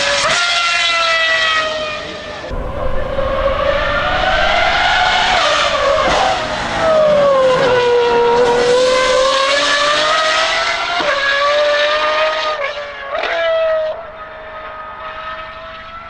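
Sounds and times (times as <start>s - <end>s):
car engine screaming at high revs: 0.0s - 16.0s.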